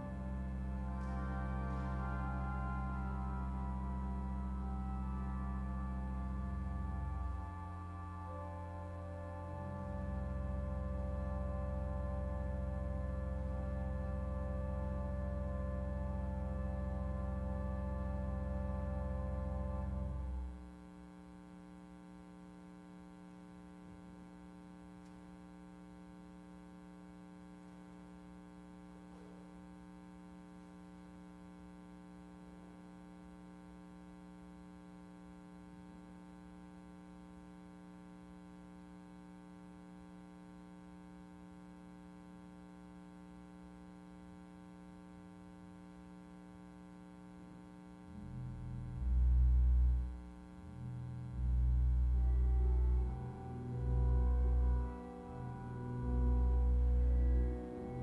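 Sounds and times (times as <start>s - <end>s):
deep organ pedal notes: 0.0s - 20.7s, 48.1s - 58.0s
pipe organ chord: 0.0s - 20.7s, 48.1s - 58.0s.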